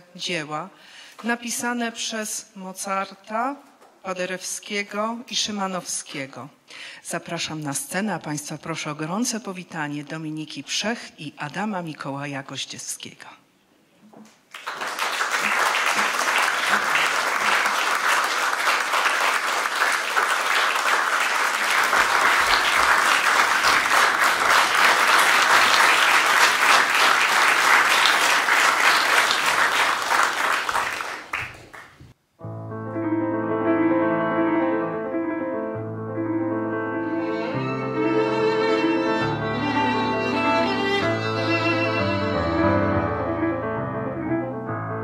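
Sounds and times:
audience applauding: 14.5 - 32.0
grand piano playing: 32.4 - 45.0.

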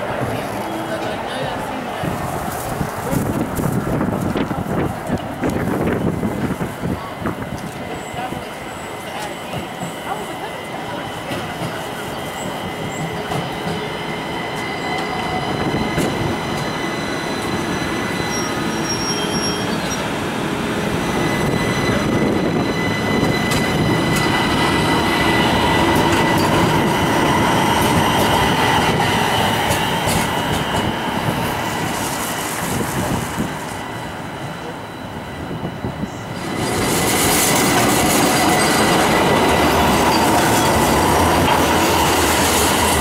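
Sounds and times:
light rail wheel rumble: 0.0 - 43.0
wheels squealing: 12.1 - 20.2.

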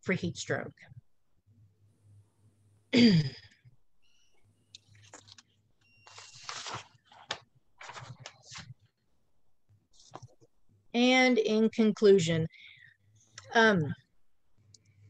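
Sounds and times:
woman sighing: 2.9 - 3.6
paper rustling: 4.9 - 8.8, 10.0 - 10.5.

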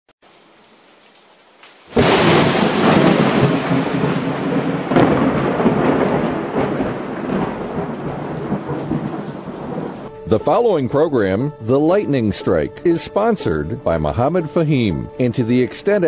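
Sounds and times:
heavy rain: 0.2 - 16.0
thunder: 1.9 - 10.1.

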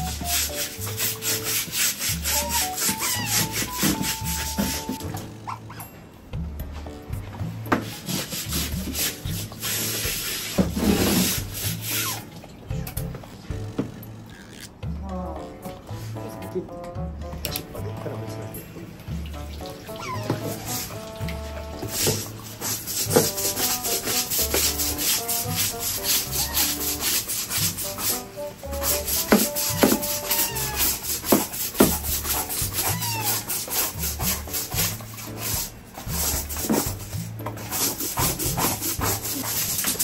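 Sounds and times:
brush scrubbing wet wooden deck: 0.0 - 5.0, 7.8 - 12.2, 20.1 - 40.0.

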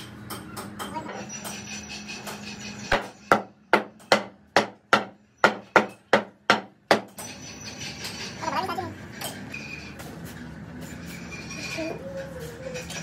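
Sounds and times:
hammer striking metal: 0.0 - 7.4
steady background hum: 0.0 - 13.0.

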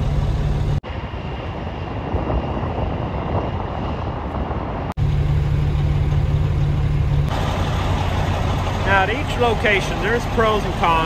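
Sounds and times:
wind on microphone: 0.0 - 5.0
traffic: 0.0 - 11.0
truck engine idling: 5.0 - 11.0.

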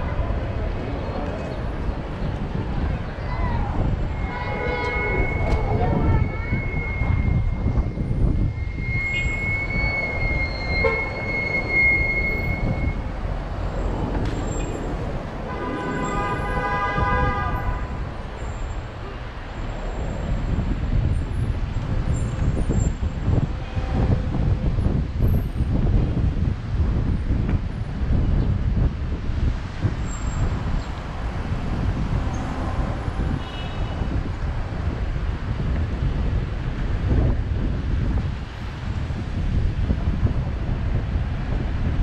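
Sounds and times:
traffic: 0.0 - 42.0
wind buffeting microphone: 0.0 - 42.0
high-pitched tone: 3.7 - 13.2
vehicle horn: 4.0 - 13.0, 15.5 - 18.0, 23.5 - 24.6, 32.3 - 34.2.

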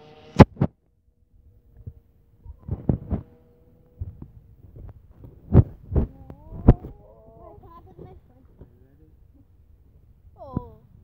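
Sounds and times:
low thumps on microphone: 1.7 - 8.8.

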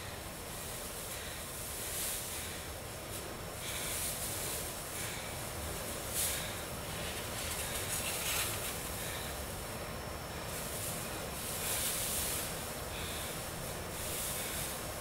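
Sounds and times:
steady hiss: 0.0 - 15.0
plastic sheets rustling: 3.1 - 9.5.

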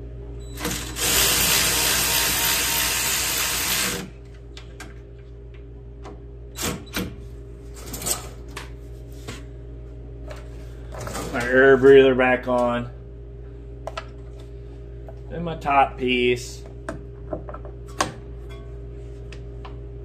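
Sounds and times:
power driver running: 0.4 - 4.4.

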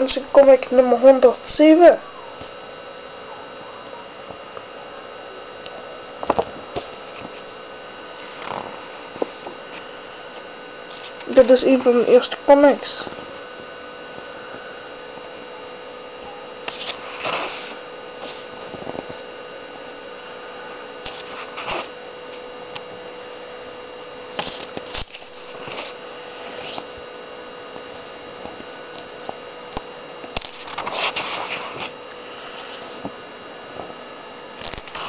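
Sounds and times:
electrical hum: 0.0 - 35.0
pages rustling: 16.7 - 19.2, 24.4 - 26.9, 30.4 - 32.0, 34.6 - 35.0.

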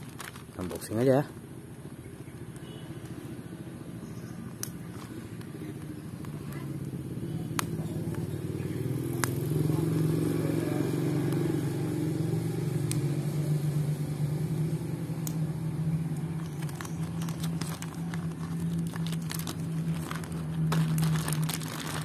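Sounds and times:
plastic packaging crinkling: 0.0 - 1.4, 16.2 - 22.0
low mechanical hum: 1.2 - 22.0.

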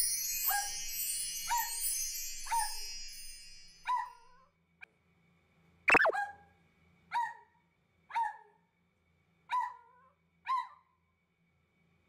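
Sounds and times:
dog barking: 7.1 - 7.5, 8.1 - 8.5, 9.5 - 9.9.

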